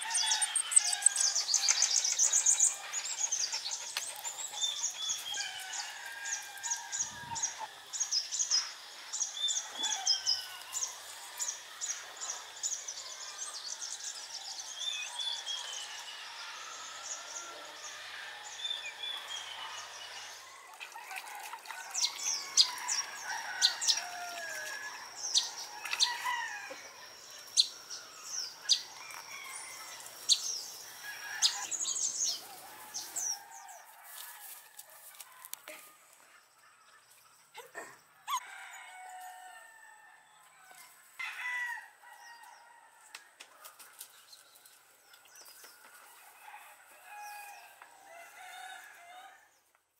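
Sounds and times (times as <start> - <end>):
birds chirping and singing: 0.0 - 20.5, 21.8 - 33.9.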